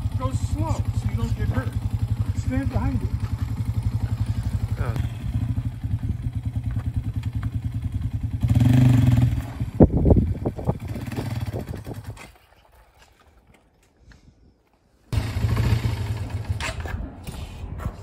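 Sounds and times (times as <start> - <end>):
engine running with rapid pulsing: 0.0 - 12.2.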